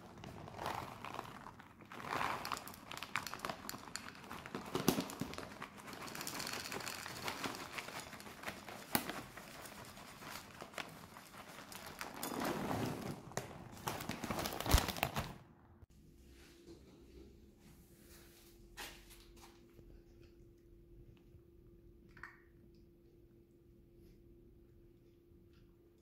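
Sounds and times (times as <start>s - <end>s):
bags crinkling and rustling: 0.0s - 15.5s.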